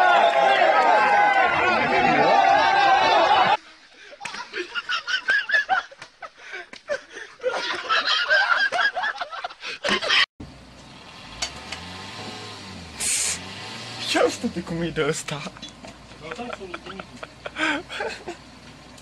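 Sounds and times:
people laughing: 0:01.4 - 0:10.3, 0:15.4 - 0:18.5.

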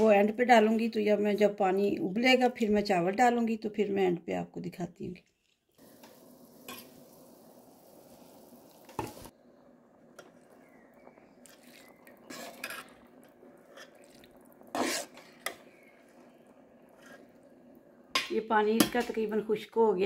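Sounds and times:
rice poured into pot: 0:05.8 - 0:09.4, 0:11.4 - 0:16.4.

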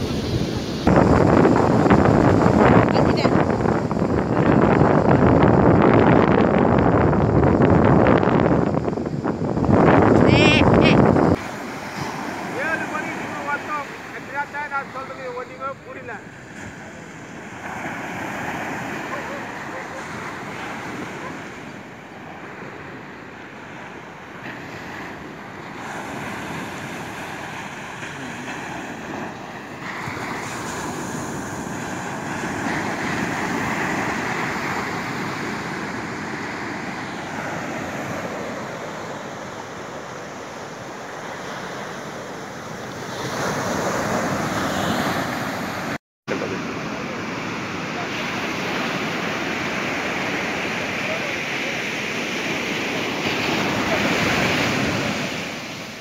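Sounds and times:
wind on microphone: 0:00.0 - 0:13.8
surf breaking on beach: 0:00.0 - 0:56.0.

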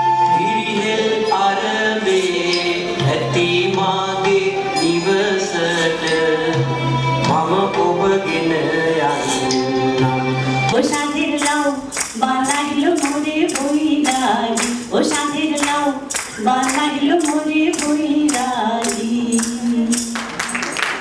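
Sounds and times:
women singing: 0:00.2 - 0:20.5
clapping steady beat: 0:10.8 - 0:21.0.

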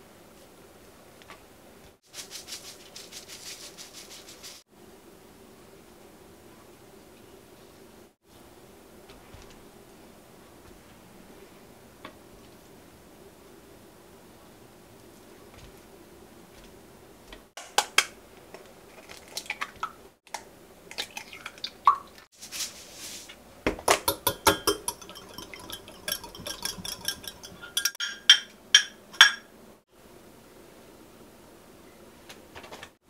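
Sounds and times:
utensils clinking on glass and dishes: 0:24.0 - 0:29.5.

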